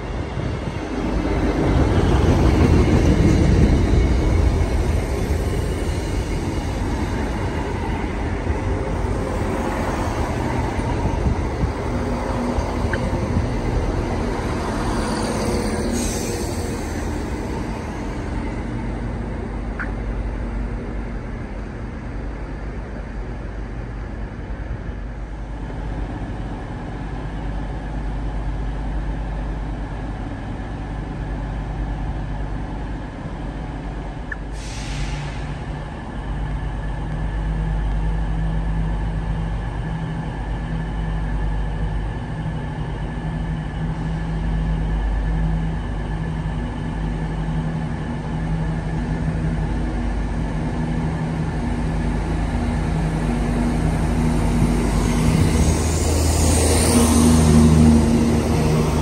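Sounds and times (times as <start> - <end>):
air brake hiss: 34.5 - 35.8.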